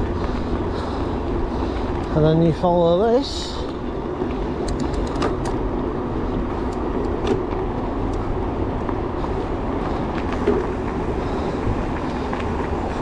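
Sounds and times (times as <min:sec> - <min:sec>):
bike clicks and rattles: 0:00.0 - 0:13.0
wind: 0:00.0 - 0:13.0
tyre rumble on trail: 0:05.6 - 0:13.0.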